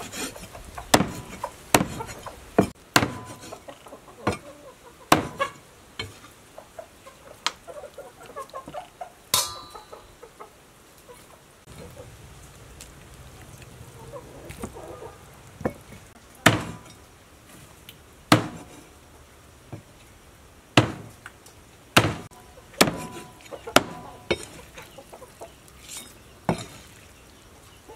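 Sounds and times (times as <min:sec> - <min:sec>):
hens clucking: 0:00.0 - 0:02.6, 0:03.3 - 0:12.3, 0:13.3 - 0:16.2, 0:22.3 - 0:25.8
cleaver chopping on wooden block: 0:00.9 - 0:03.6, 0:05.1 - 0:05.4, 0:16.4 - 0:16.8, 0:18.3 - 0:18.7, 0:20.8 - 0:21.1, 0:22.0 - 0:24.5.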